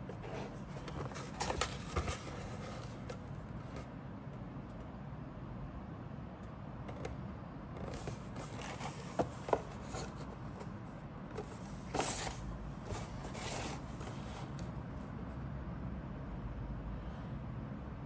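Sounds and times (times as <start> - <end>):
cardboard box rubbing and scraping: 11.8 - 14.5.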